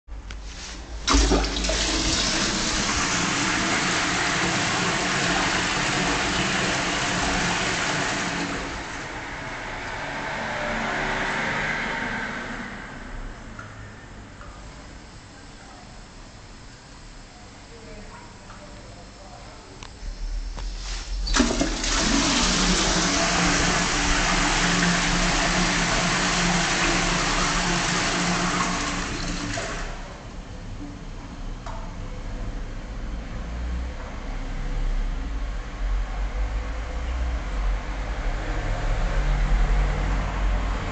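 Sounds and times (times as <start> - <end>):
toilet flushing: 0.8 - 9.4, 20.6 - 30.4
steady low hum: 11.9 - 26.4.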